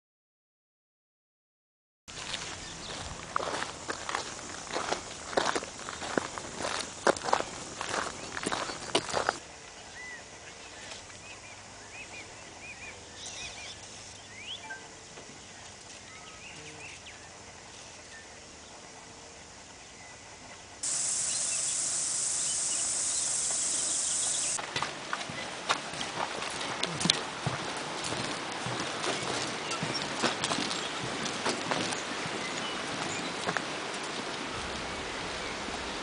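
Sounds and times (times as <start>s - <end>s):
footsteps on gravel: 2.1s - 9.4s, 20.8s - 33.7s
high-pitched cicada drone: 20.8s - 24.6s
short bird chirps: 20.8s - 24.6s.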